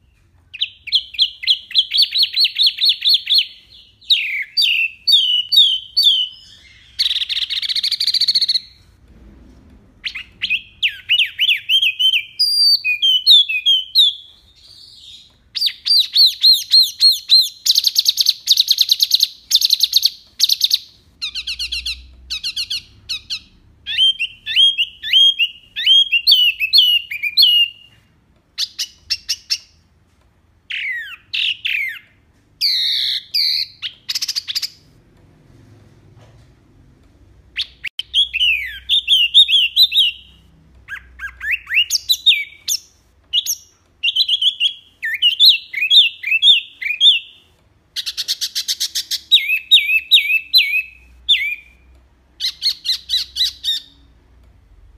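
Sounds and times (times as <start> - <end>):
bird singing whistled trills: 0.0 - 8.8, 10.0 - 28.0, 37.6 - 47.4, 48.0 - 54.0.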